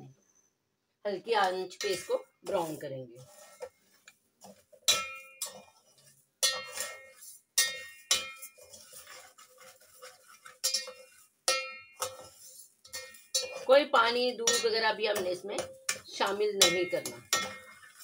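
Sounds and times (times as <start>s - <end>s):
metal spatula scraping pot: 1.2s - 18.0s
spatula knocking with metallic ring: 4.8s - 8.8s, 10.5s - 13.7s, 14.3s - 18.0s.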